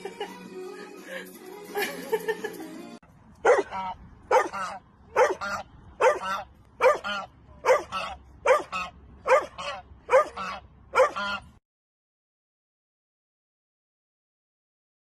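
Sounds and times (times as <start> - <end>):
dog barking: 3.4 - 11.3.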